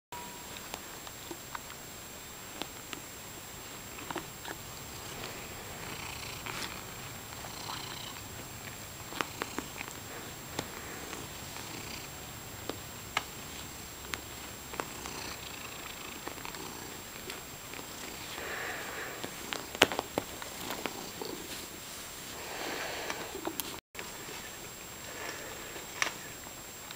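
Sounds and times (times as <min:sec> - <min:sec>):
cat purring: 0:00.2 - 0:26.8
soft clicks and rustles of handling: 0:19.2 - 0:22.2.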